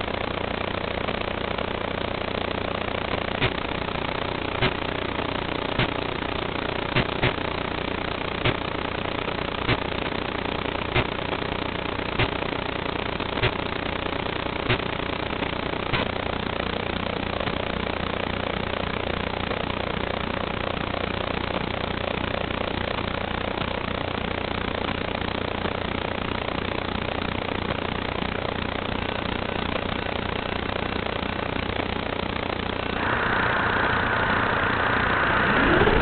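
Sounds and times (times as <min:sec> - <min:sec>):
faint low hum: 0:00.0 - 0:36.0
steady hiss: 0:32.9 - 0:36.0
quadcopter motors whining: 0:33.0 - 0:36.0.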